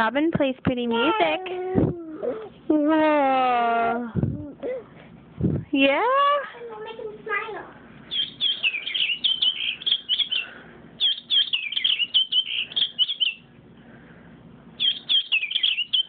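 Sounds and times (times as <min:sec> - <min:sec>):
toy playing high bird chirps: 0:08.1 - 0:10.4, 0:11.0 - 0:13.4, 0:14.8 - 0:16.0.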